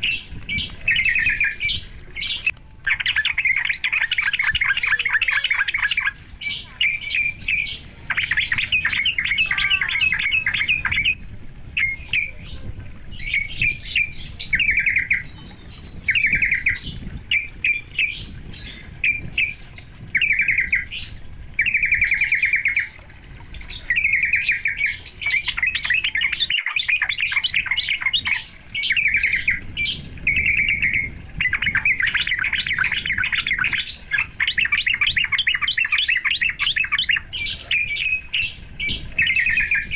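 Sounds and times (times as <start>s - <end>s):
low steady rumble: 27.4s - 35.4s.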